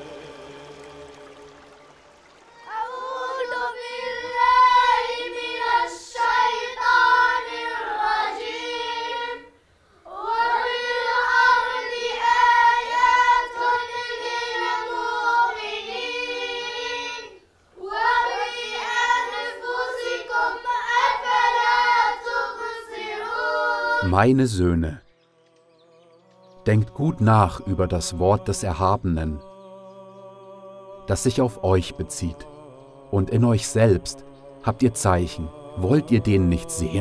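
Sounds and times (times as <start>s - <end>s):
children chanting in unison: 0.0s - 24.1s, 26.7s - 37.0s.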